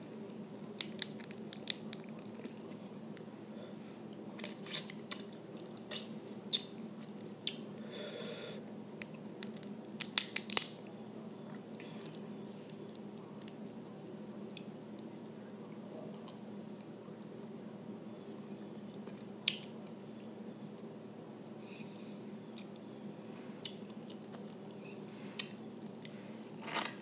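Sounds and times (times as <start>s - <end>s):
crab shell snapping and crackling: 0.5s - 3.3s, 9.0s - 10.8s, 12.0s - 13.8s.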